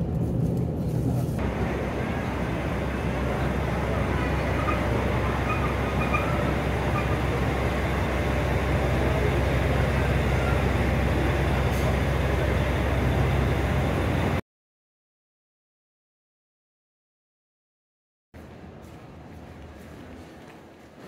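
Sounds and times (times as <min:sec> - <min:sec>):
train engine hum: 0:00.0 - 0:14.4, 0:18.4 - 0:21.0
platform noise: 0:01.4 - 0:14.4.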